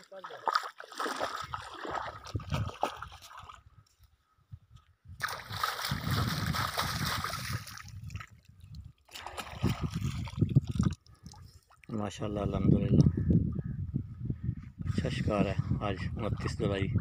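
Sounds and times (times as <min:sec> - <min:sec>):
river water splashing: 0:00.0 - 0:03.6, 0:05.2 - 0:08.3, 0:09.0 - 0:11.8.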